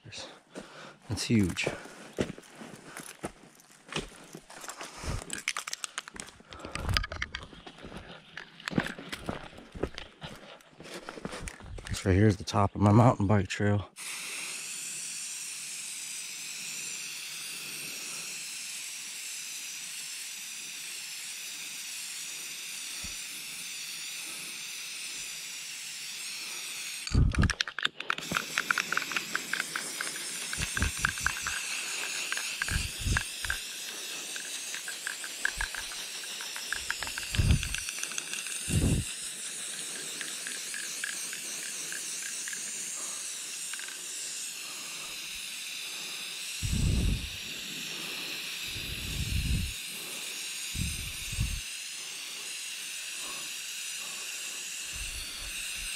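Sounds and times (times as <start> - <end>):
spray-paint can hissing: 14.0 - 55.9
rapid clicks: 27.1 - 45.4.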